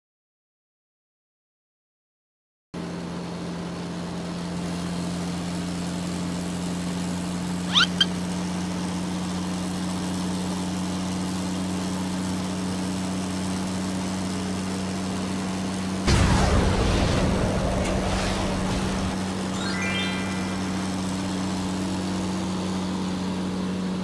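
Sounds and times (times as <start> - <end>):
cartoon engine drone: 7.6 - 8.2, 16.1 - 23.6
rising squeaks: 7.7 - 8.1, 18.9 - 22.3.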